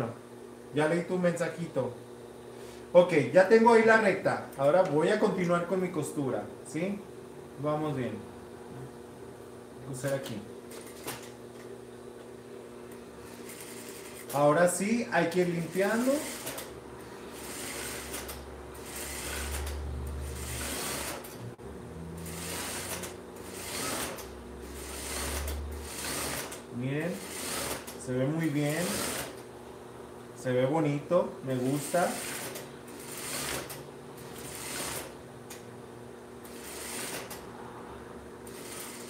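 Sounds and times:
steady motor hum: 0.0 - 39.0
sewing machine stitching: 15.7 - 16.7, 17.3 - 21.4, 22.2 - 26.6, 27.2 - 28.0, 28.6 - 29.4, 31.7 - 35.2, 36.5 - 37.4, 38.5 - 39.0.

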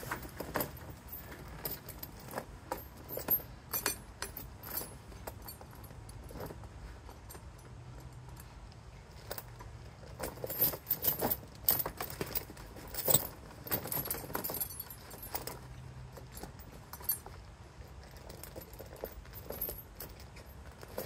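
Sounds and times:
tire chain jingling and clinking: 0.0 - 21.0.

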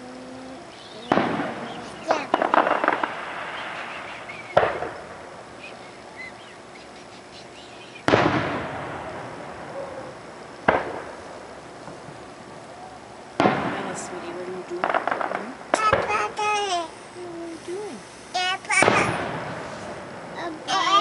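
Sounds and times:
firework shells booming: 1.0 - 5.8, 8.0 - 12.4, 13.3 - 16.6, 18.6 - 20.9.

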